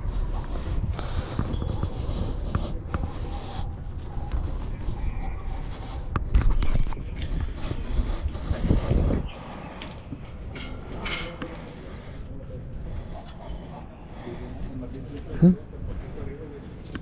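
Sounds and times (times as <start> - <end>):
rustles and creaks: 0.0 - 17.0.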